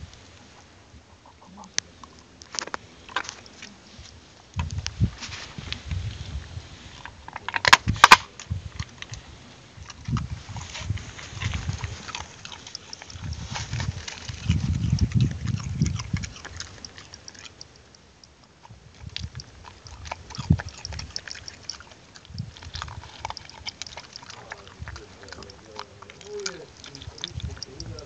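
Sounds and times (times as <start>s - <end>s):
dog crunching walnut shell: 2.0s - 3.6s, 9.8s - 28.0s.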